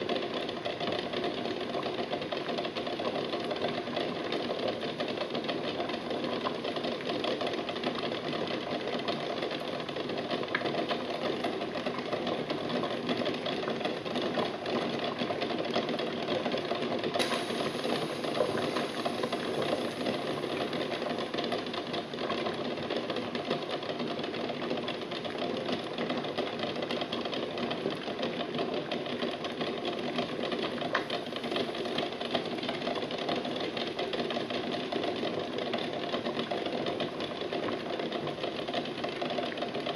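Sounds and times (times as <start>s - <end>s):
water boiling in a pot: 0.0s - 39.9s
eggs rattling against pot: 17.2s - 22.4s.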